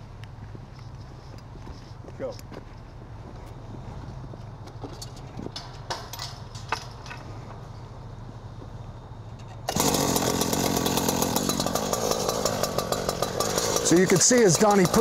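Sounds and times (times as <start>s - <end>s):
tools clinking against metal gate: 4.9s - 7.3s
petrol rescue saw running: 9.7s - 15.0s.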